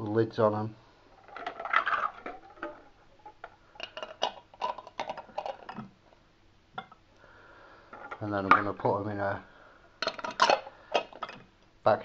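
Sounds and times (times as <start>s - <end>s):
metal lids clinking on glass jars: 3.8s - 5.9s, 10.0s - 11.5s.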